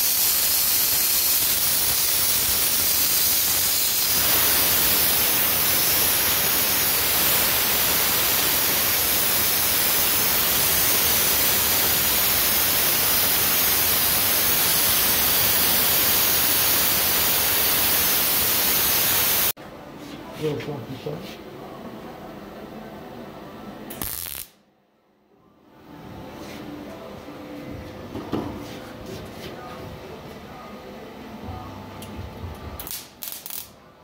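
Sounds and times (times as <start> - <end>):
sandblaster hissing: 0.0 - 19.6, 24.0 - 24.6.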